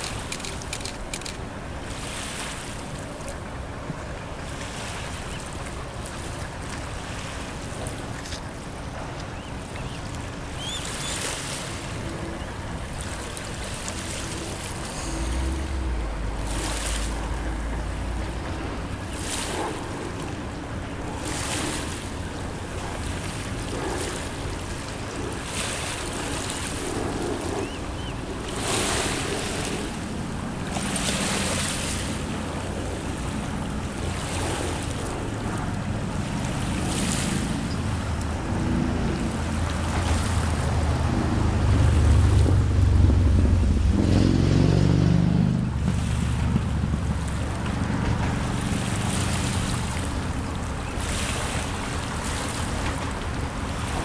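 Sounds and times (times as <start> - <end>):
small waves lapping on shore: 0.0 - 54.0
low motor hum: 11.8 - 21.2, 26.3 - 54.0
wind noise on microphone: 13.5 - 54.0.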